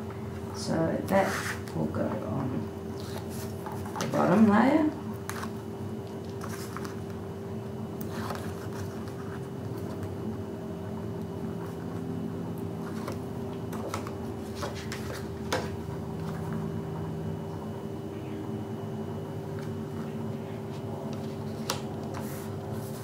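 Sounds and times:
steady low hum: 0:00.0 - 0:23.0
paper rustling: 0:06.2 - 0:07.0, 0:08.0 - 0:10.1, 0:12.8 - 0:16.5, 0:21.1 - 0:23.0.

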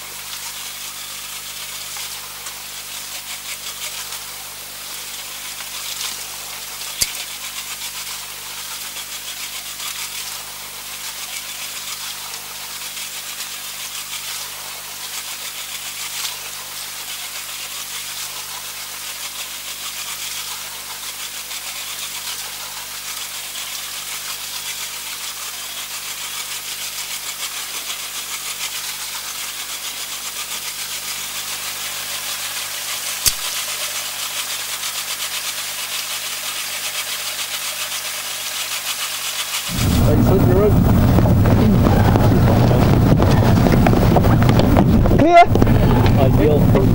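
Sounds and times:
constant hiss: 0:27.5 - 0:46.9
sharp click: 0:33.2 - 0:33.5
outboard engine running: 0:39.6 - 0:46.9.

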